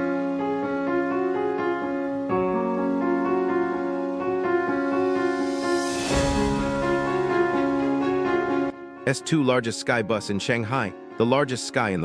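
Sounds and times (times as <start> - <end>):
sustained background chords: 0.0 - 12.0
whoosh: 5.0 - 8.3
low hit: 5.3 - 8.4.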